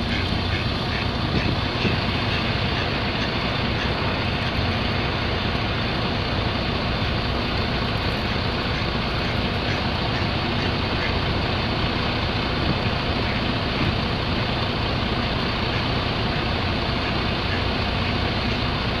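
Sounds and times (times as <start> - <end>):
faint duck quacks: 0.0 - 4.8, 8.2 - 11.2
vehicle engine idling: 0.0 - 19.0.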